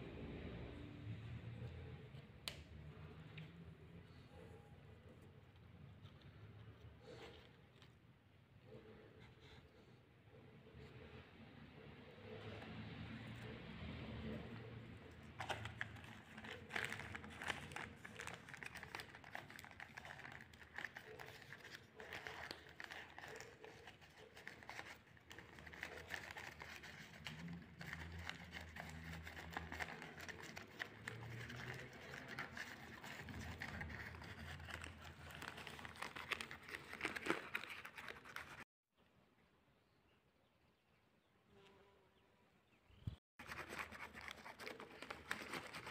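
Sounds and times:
plastic bags crinkling: 15.4 - 23.6.

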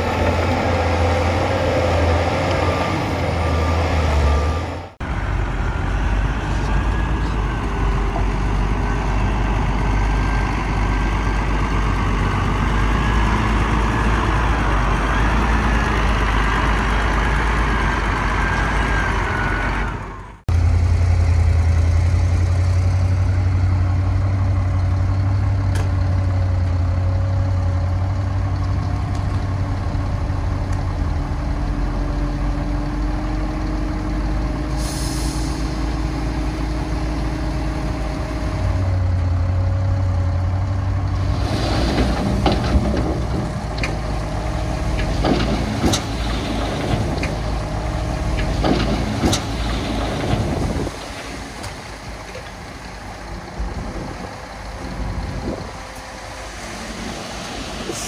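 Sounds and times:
heavy diesel engines running: 0.0 - 58.0
low engine hum: 35.6 - 58.0.

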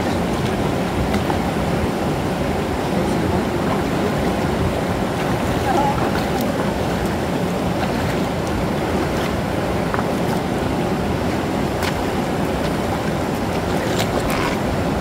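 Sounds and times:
feet splashing in water: 0.0 - 15.0
waterfall rushing into pool: 0.0 - 15.0.

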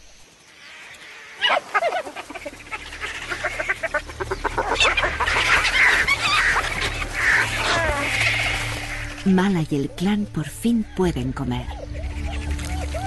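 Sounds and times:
hyenas squealing and cackling: 1.3 - 9.2, 11.7 - 13.0.

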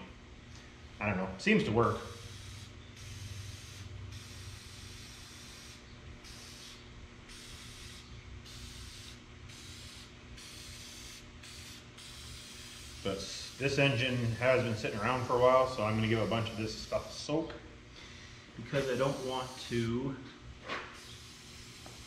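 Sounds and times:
aerosol can spraying: 2.1 - 14.0, 14.9 - 17.2, 18.7 - 19.9, 20.9 - 22.0.

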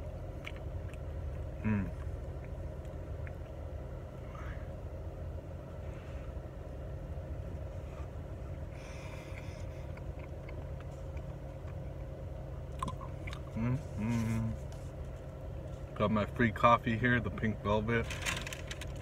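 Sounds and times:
car engine rumble inside cabin: 0.0 - 19.0.

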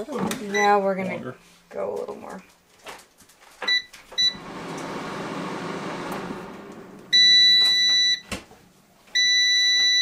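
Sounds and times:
air fryer fan whirring: 4.2 - 8.5
long electronic beeps: 7.1 - 8.3.

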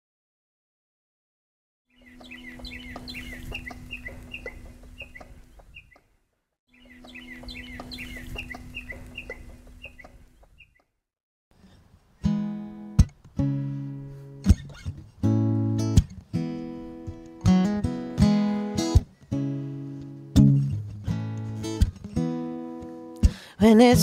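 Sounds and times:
fowl clucking: 2.1 - 6.1, 6.9 - 10.7.

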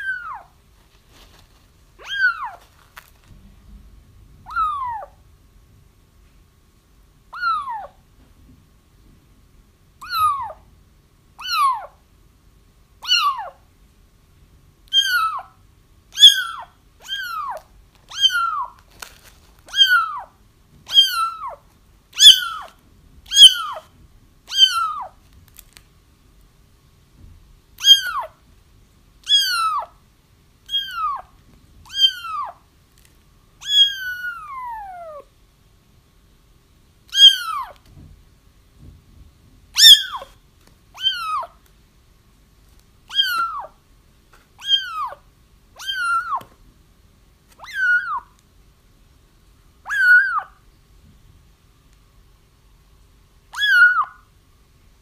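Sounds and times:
kittens meowing: 0.0 - 0.6, 2.0 - 2.6, 4.4 - 5.2, 7.3 - 8.0, 10.0 - 10.6, 11.4 - 12.0, 13.0 - 13.6, 14.9 - 15.6, 16.2 - 18.8, 19.7 - 21.6, 22.2 - 23.9, 24.5 - 25.2, 27.8 - 28.4, 29.2 - 29.9, 30.6 - 31.3, 31.9 - 32.6, 33.6 - 35.3, 37.1 - 37.8, 39.8 - 40.3, 41.0 - 41.6, 43.1 - 43.8, 44.6 - 45.2, 45.8 - 46.5, 47.6 - 48.3, 49.9 - 50.6, 53.5 - 54.3.

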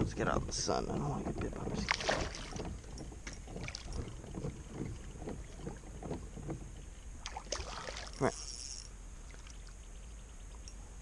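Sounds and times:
fish splashing at water surface: 1.8 - 2.6, 7.2 - 8.3.

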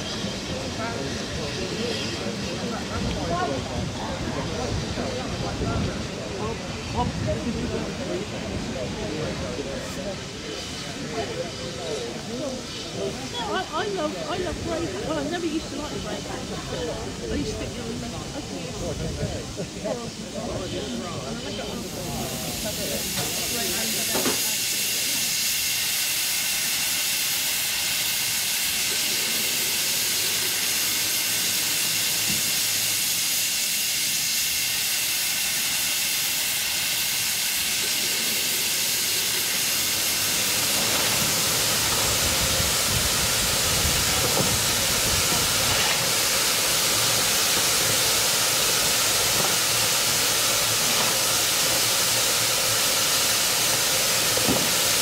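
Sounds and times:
steam locomotive hissing: 0.0 - 55.0.

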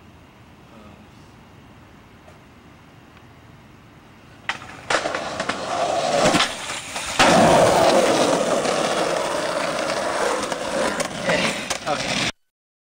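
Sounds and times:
skateboard wheels rolling on concrete: 4.0 - 12.4
skateboard slapping on landing: 4.4 - 12.3
skateboard tail popping: 4.4 - 12.3.

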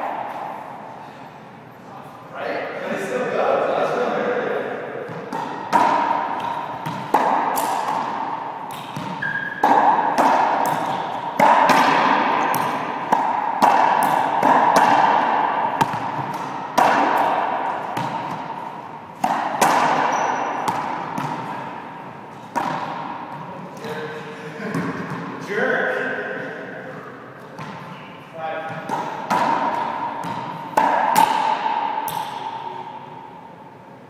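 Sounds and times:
racquetball hits echoing: 4.9 - 24.0, 24.6 - 25.5, 26.7 - 33.5
shoe squeaks: 8.8 - 9.6, 20.1 - 20.6.

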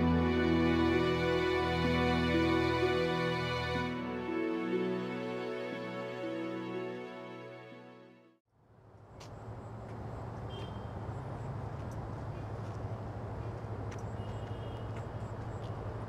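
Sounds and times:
distant traffic rumble: 8.6 - 16.0.

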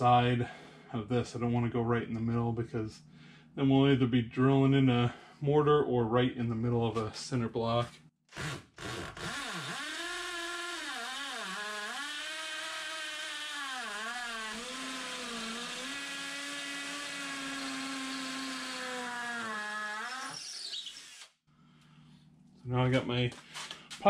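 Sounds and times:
hammer drill whining: 8.3 - 21.4.

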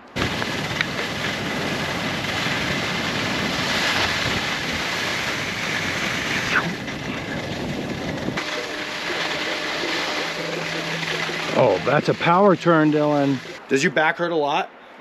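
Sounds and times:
wind over microphone: 0.0 - 8.4
skis scraping over snow: 0.0 - 13.9.

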